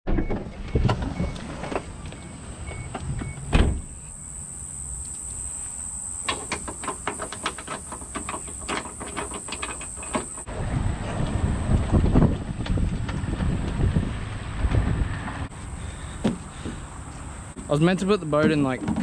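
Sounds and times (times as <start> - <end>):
high-pitched insect drone: 2.2 - 10.5
car door thump: 3.2 - 4.0.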